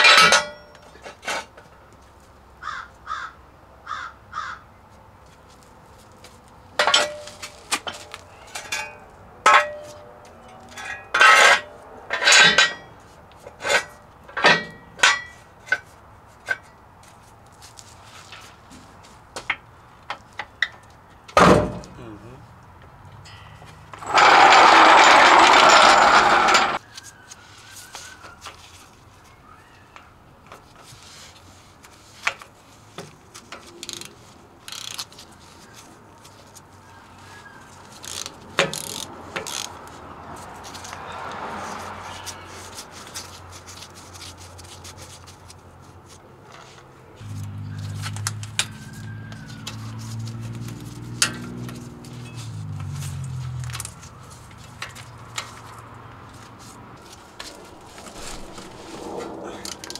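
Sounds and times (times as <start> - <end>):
loud rush of noise: 24.0 - 26.8, 57.0 - 59.9.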